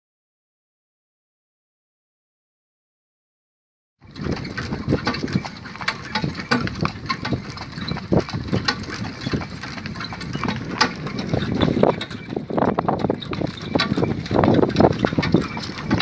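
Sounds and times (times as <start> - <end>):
cart wheels rumbling: 4.0 - 16.0
hoofbeats on gravel: 4.1 - 16.0.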